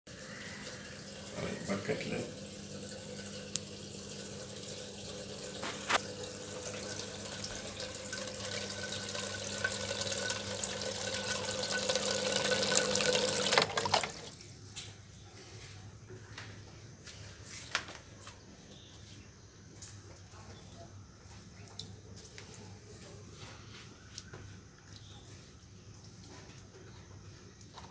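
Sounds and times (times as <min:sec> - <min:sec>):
water gushing into bucket: 0:00.1 - 0:14.4.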